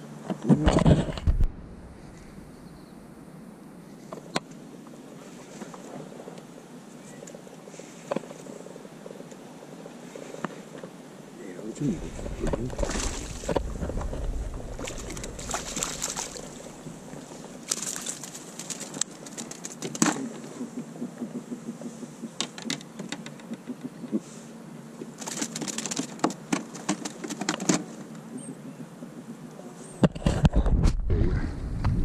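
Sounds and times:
fish splashing at surface: 12.1s - 19.7s
fish flapping in a net: 12.6s - 20.2s, 25.2s - 27.4s.

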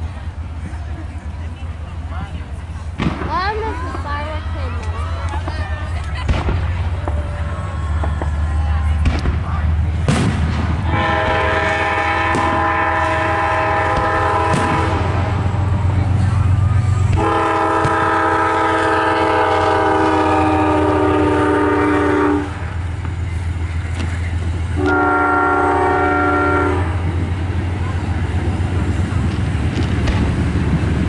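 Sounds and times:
firework bangs: 3.0s - 3.7s, 6.2s - 7.3s, 8.0s - 15.3s, 29.3s - 30.4s
chorded train horn blasts: 10.8s - 15.6s, 17.1s - 22.8s, 24.7s - 27.1s.

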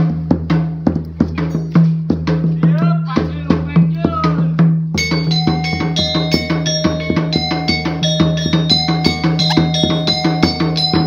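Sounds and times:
drum beating: 0.0s - 11.0s
ringing metal percussion: 1.4s - 1.9s, 5.0s - 11.0s.

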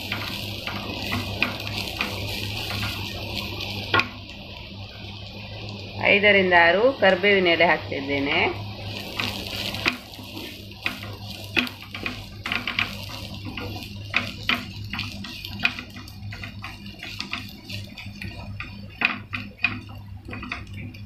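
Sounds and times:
spatula scraping a frying pan: 0.0s - 4.1s, 8.8s - 21.0s
onions frying: 0.0s - 21.0s
steady low hum: 0.0s - 21.0s.

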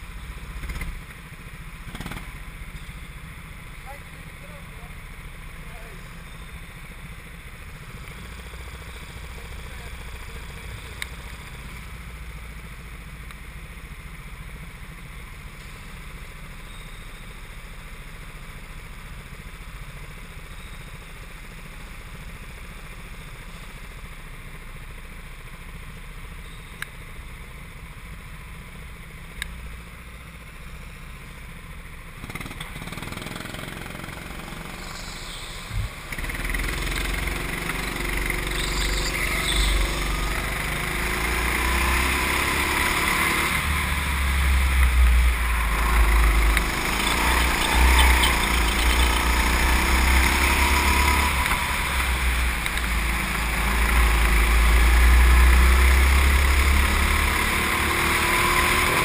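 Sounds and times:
go-kart engine idling and revving: 0.0s - 59.0s.

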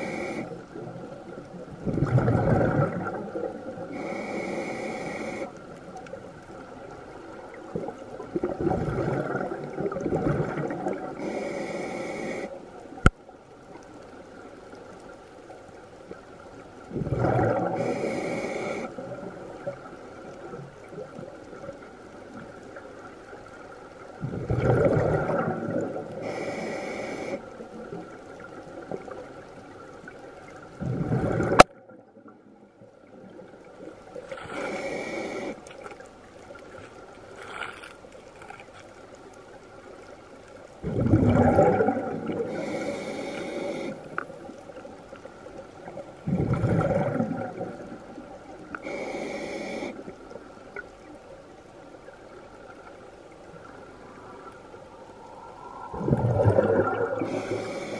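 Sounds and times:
regulator inhale hiss: 0.0s - 0.8s, 3.9s - 5.6s, 11.2s - 12.6s, 17.8s - 19.0s, 26.2s - 27.6s, 34.3s - 35.8s, 42.4s - 44.2s, 48.7s - 50.2s, 57.2s - 57.9s
exhaled bubbles gurgling: 0.0s - 13.1s, 16.8s - 38.8s, 40.0s - 51.3s, 52.0s - 57.9s.

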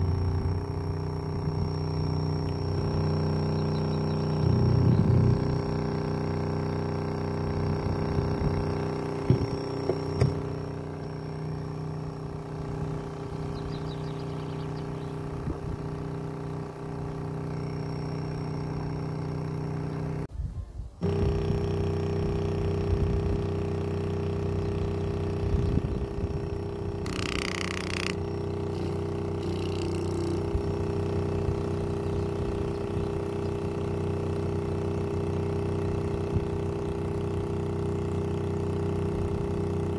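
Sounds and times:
speaker woofer playing low test tone: 0.0s - 20.3s, 21.0s - 39.9s.

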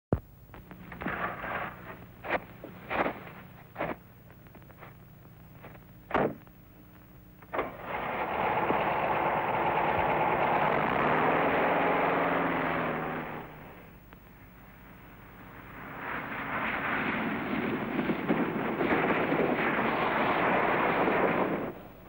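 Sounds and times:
car engine starting and running: 7.4s - 14.7s.

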